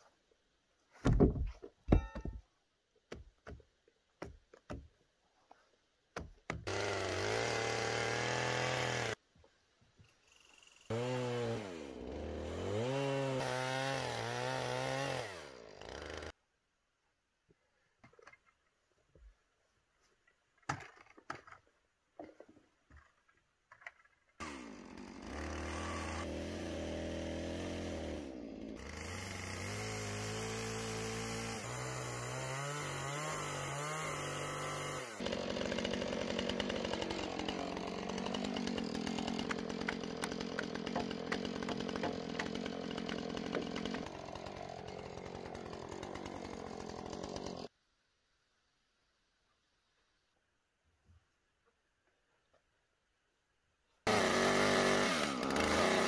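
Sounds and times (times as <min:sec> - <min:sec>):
chainsaw running: 0:06.6 - 0:09.2, 0:10.9 - 0:16.4, 0:24.4 - 0:47.7, 0:54.1 - 0:56.0.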